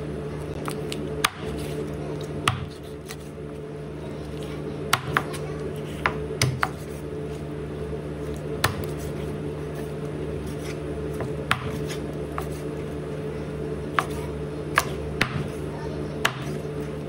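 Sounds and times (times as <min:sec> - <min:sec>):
steady low hum: 0:00.0 - 0:17.0
knife chopping on cutting board: 0:01.2 - 0:01.6, 0:04.9 - 0:05.4, 0:10.5 - 0:12.6, 0:13.9 - 0:15.6, 0:16.2 - 0:16.6.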